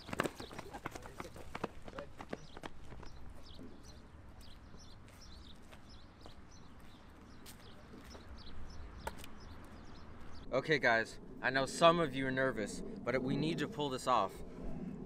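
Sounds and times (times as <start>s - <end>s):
footsteps of sneakers on track: 0.0s - 3.6s
small birds chirping: 0.0s - 12.7s.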